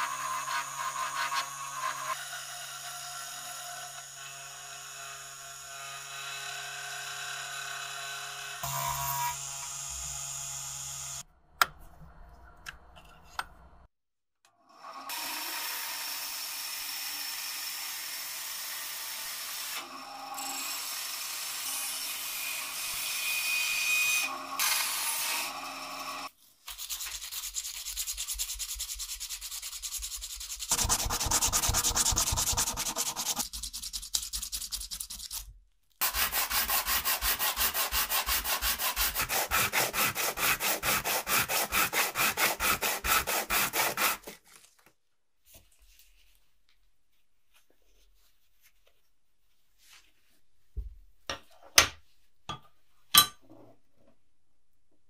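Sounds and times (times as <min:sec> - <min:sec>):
sandpaper rubbing on wood: 0:26.7 - 0:35.4, 0:36.0 - 0:44.4.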